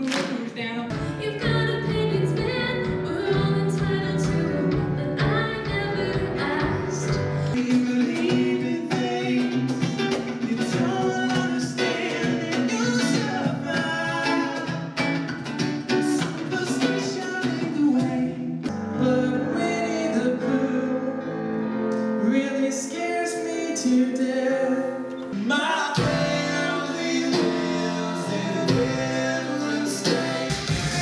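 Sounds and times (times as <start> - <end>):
acoustic guitar: 0.9 - 31.0
two men singing: 7.5 - 15.0, 16.0 - 21.2, 22.2 - 31.0.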